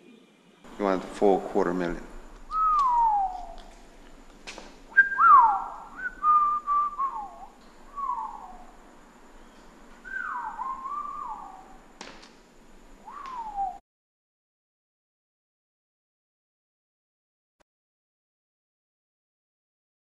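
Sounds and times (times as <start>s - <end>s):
person whistling a tune: 2.5s - 3.6s, 4.9s - 8.5s, 10.0s - 11.5s, 13.1s - 13.8s.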